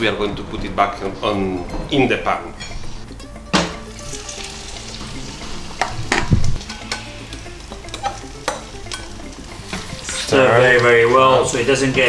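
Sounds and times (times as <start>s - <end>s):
egg mixture sizzling in a frying pan: 3.8s - 12.0s.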